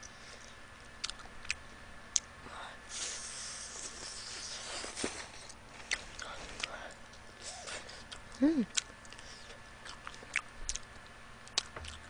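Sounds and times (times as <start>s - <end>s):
mouth sucking hiss: 2.9s - 5.2s.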